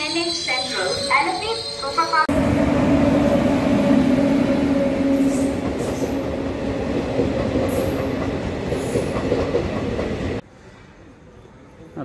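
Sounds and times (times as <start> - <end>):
high wheel squeals: 0.0 - 2.3
train wheels rumbling on rails: 1.9 - 10.4.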